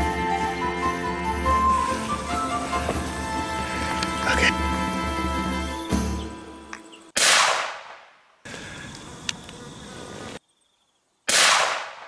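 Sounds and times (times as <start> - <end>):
rifle shots echoing: 7.2 - 8.2, 11.3 - 12.0.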